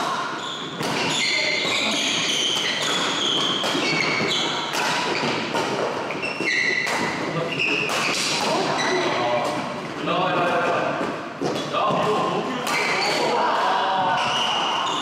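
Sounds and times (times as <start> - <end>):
shoes squeaking on court floor: 0.3 - 9.8, 14.1 - 15.0
rackets striking shuttlecock: 2.2 - 8.5.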